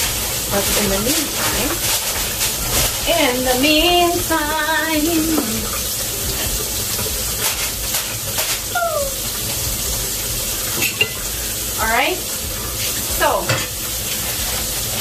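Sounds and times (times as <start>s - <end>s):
water running from tap: 0.0s - 15.0s.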